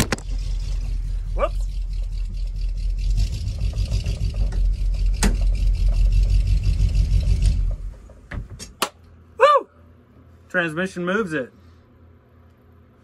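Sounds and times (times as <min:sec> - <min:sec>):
bus engine droning: 0:00.0 - 0:08.2.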